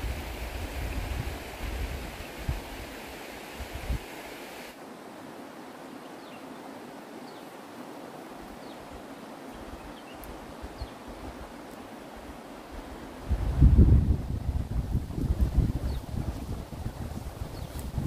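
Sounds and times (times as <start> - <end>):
wind buffeting microphone: 0.0 - 3.0, 3.6 - 4.1, 12.7 - 18.0
wind hissing: 0.0 - 4.8, 8.3 - 18.0.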